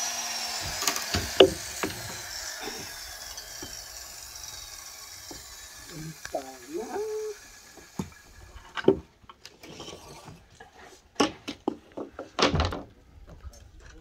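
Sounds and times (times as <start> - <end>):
wooden planks knocking: 0.6 - 3.9, 7.7 - 9.1, 11.2 - 12.9.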